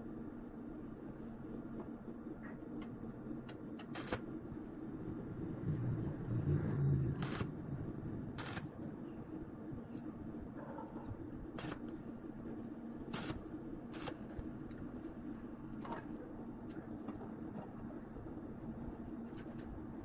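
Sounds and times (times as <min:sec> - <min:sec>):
low hum: 0:00.0 - 0:20.0
welding arc bursts: 0:03.8 - 0:04.3, 0:07.1 - 0:07.6, 0:08.3 - 0:08.8, 0:11.5 - 0:11.9, 0:13.1 - 0:14.3.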